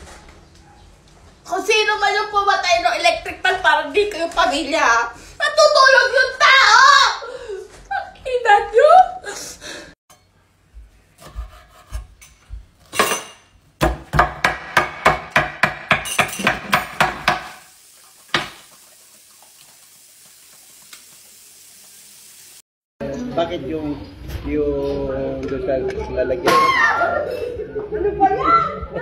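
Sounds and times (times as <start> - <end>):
knife chopping on wooden board: 13.8 - 17.6.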